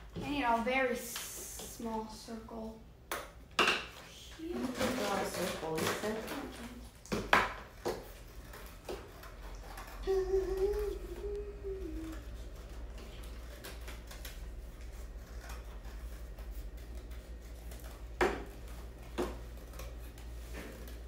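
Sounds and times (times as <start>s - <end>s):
scissors cutting cardboard: 4.6s - 21.0s.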